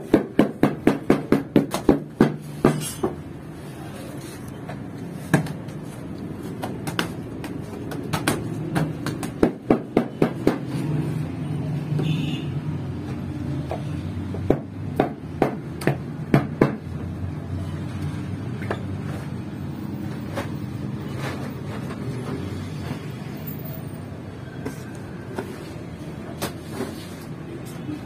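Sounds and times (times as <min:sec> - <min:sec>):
sharp knocks and taps: 0:06.6 - 0:10.7.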